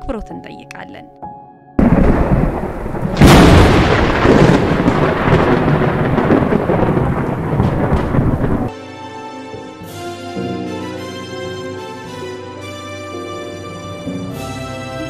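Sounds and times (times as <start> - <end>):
music with sustained notes: 0.0 - 2.6, 8.7 - 15.0
thunder rumbling: 1.8 - 8.7.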